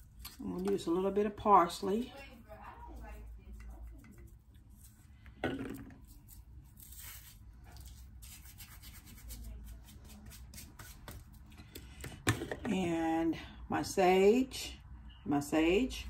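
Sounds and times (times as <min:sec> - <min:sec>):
hands rubbing dried herbs: 0:06.0 - 0:11.1.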